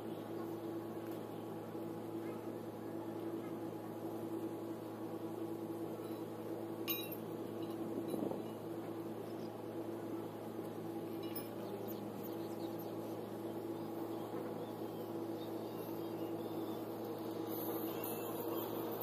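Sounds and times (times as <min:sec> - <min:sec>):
machine hum: 0:00.0 - 0:19.0
light metallic clink: 0:06.0 - 0:08.6, 0:11.1 - 0:11.7.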